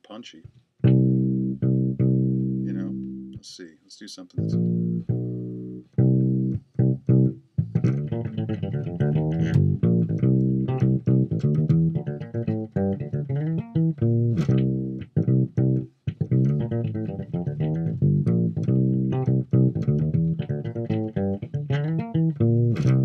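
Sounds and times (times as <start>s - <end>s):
electric bass plucked notes: 0.8s - 3.4s, 4.3s - 23.0s.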